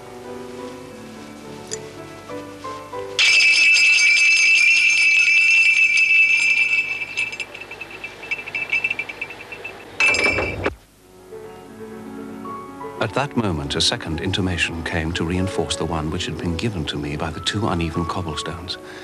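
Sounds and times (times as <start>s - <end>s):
jingle bell jangling: 3.2s - 10.7s.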